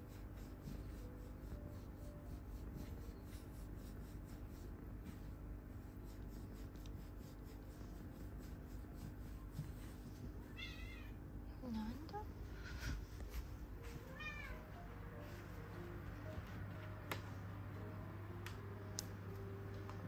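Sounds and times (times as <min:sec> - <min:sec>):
hand rubbing cat fur: 0:00.0 - 0:10.8
low steady hum: 0:00.0 - 0:20.0.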